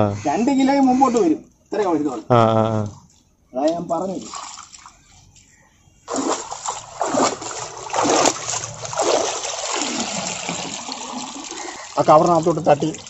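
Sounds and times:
water splashing in surges: 4.1s - 5.0s, 6.1s - 13.0s.

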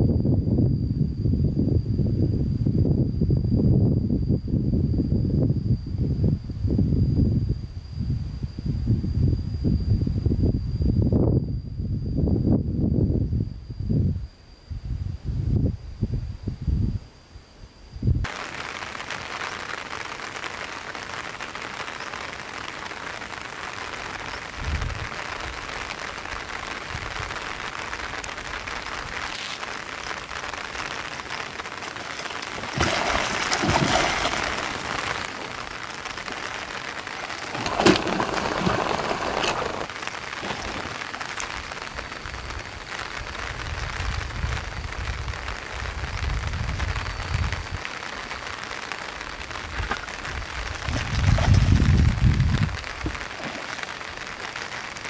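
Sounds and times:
steady hiss: 14.1s - 55.0s
fish thrashing and splashing water: 29.1s - 42.2s, 49.6s - 55.0s.

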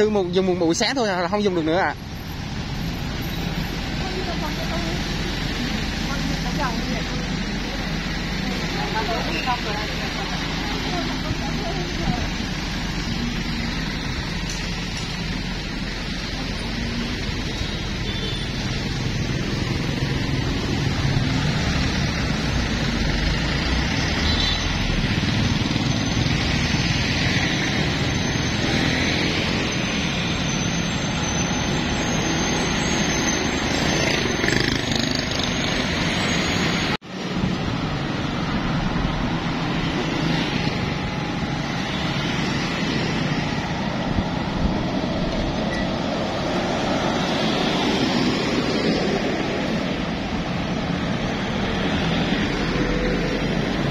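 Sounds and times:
road traffic passing: 0.0s - 53.9s.

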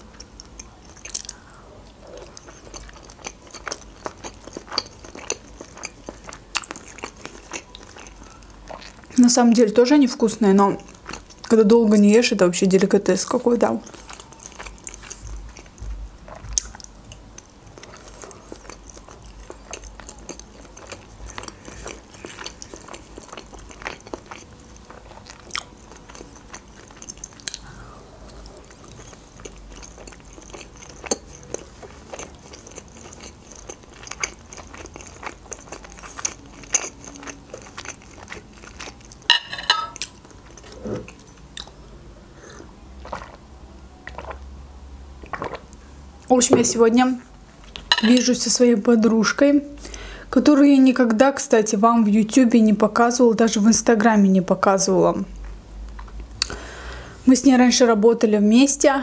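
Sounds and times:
close chewing and mouth sounds: 0.0s - 44.6s, 45.2s - 46.4s, 55.3s - 56.6s.

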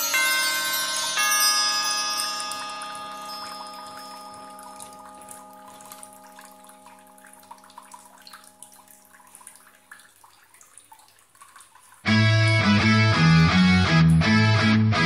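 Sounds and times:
faint crackling trickling noise: 2.2s - 12.1s.

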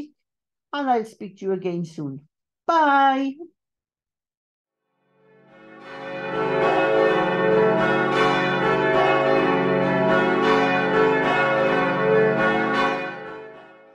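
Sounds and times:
church bells ringing: 5.4s - 13.9s.

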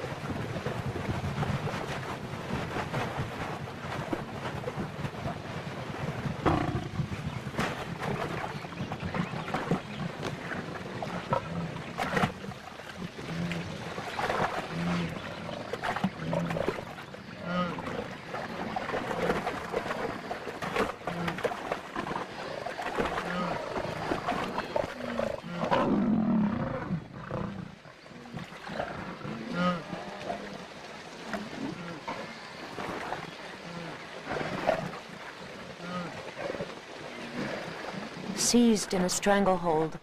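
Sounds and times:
water splashing: 0.0s - 25.8s, 28.0s - 40.0s
lioness growling: 6.4s - 7.4s, 22.4s - 32.4s.

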